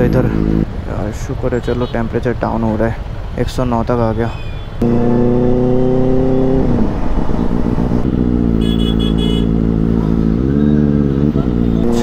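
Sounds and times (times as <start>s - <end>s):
motorcycle engine running: 0.0s - 0.8s, 7.2s - 12.0s.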